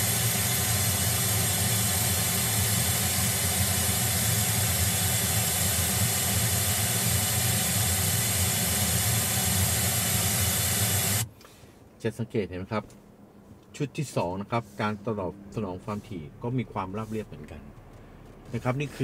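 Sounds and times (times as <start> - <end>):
pink noise test signal hiss: 0.0 - 12.8.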